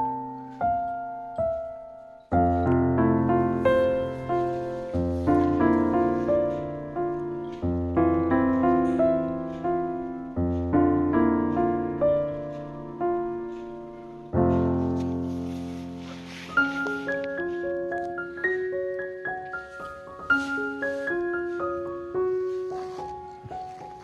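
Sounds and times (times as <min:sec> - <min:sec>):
slow piano music: 0:00.0 - 0:24.0.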